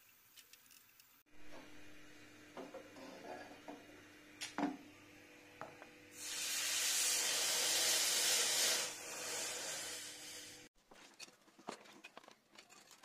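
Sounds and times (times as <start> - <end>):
hot blade hissing in water: 6.1 - 10.7.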